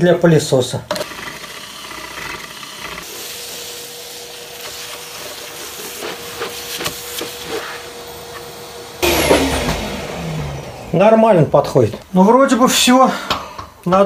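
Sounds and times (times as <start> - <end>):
cordless drill boring wood: 0.9 - 5.1
vacuum cleaner running: 1.0 - 13.0.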